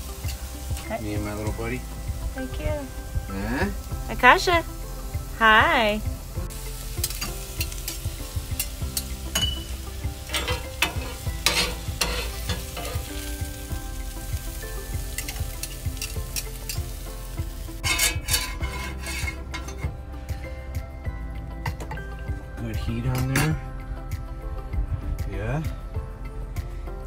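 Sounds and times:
vegetables sizzling on griddle: 0:00.0 - 0:20.3
spatula and fork scraping griddle: 0:10.2 - 0:13.2, 0:17.8 - 0:20.0.

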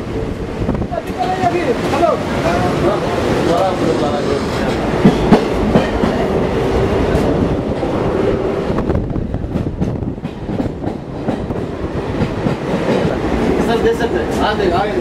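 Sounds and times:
train wheels clattering on track: 0:00.0 - 0:15.0.

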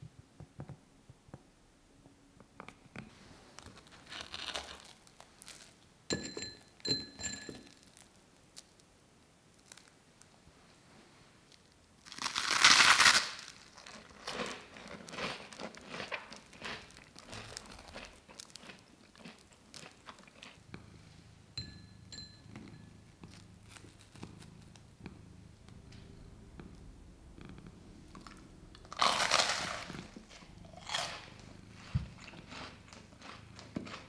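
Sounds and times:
fried bread crunching: 0:03.7 - 0:05.7, 0:12.0 - 0:20.6, 0:28.8 - 0:31.4.

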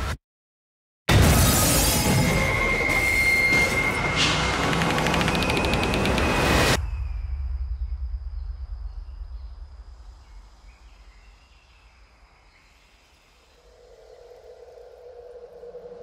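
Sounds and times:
deep rumble: 0:06.8 - 0:11.6
thin steady insect tone: 0:06.8 - 0:16.0.

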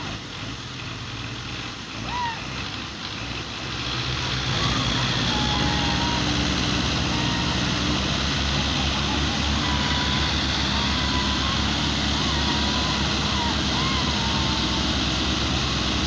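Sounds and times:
tractor diesel engines straining: 0:00.0 - 0:16.0.

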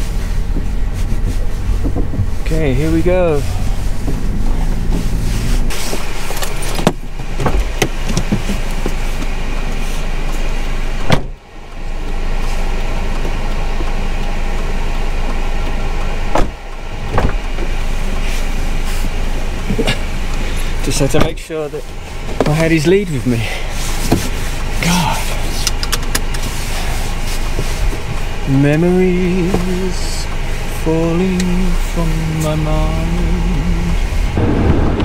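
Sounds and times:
car engine and road hum: 0:00.0 - 0:35.0
sharp knocks and clunks: 0:06.0 - 0:09.0, 0:11.0 - 0:11.4, 0:16.3 - 0:17.7.

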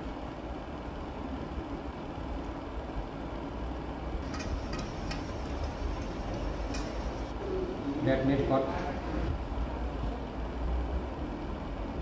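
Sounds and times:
kitchen background hum: 0:00.0 - 0:09.4.

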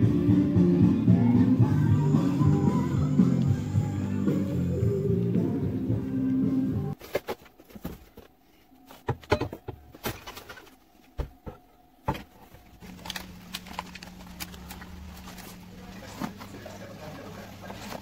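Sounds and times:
steady low hum: 0:08.0 - 0:18.0
packaging knocks and rustles: 0:12.1 - 0:16.8.

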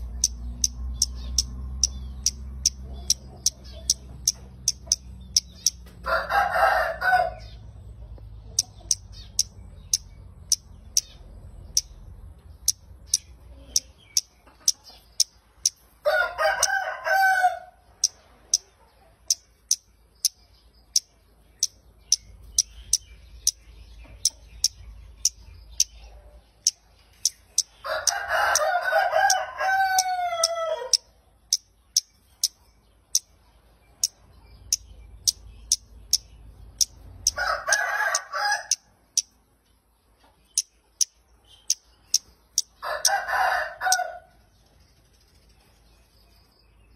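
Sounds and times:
small bird chip calls: 0:00.0 - 0:06.0, 0:08.4 - 0:15.9, 0:18.0 - 0:39.4
rooster crowing: 0:06.0 - 0:07.5, 0:16.0 - 0:17.8, 0:27.8 - 0:31.0, 0:37.3 - 0:38.9, 0:42.8 - 0:44.3.

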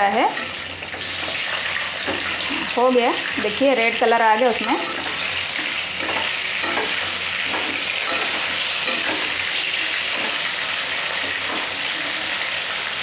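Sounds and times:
chicken sizzling in hot oil: 0:00.0 - 0:13.0
metal spatula scraping a pan: 0:00.1 - 0:12.8.

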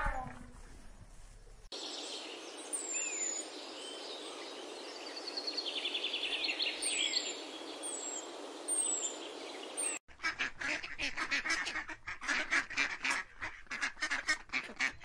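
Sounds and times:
small birds chirping: 0:01.7 - 0:10.0.

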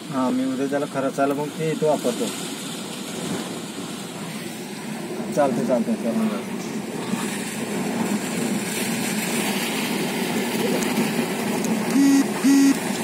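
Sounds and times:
vehicle horn honking: 0:11.9 - 0:12.8.

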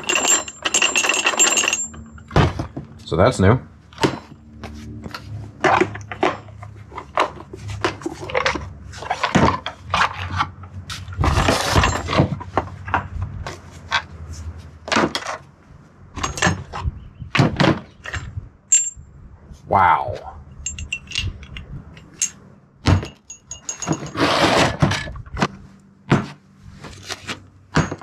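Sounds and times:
irregular knocks and clanks: 0:20.7 - 0:26.4.

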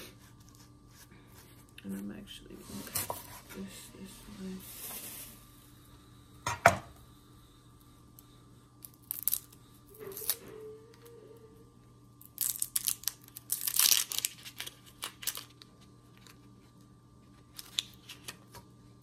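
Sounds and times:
onion skin crackling and tearing: 0:08.8 - 0:10.4, 0:12.2 - 0:16.5, 0:17.4 - 0:18.5.

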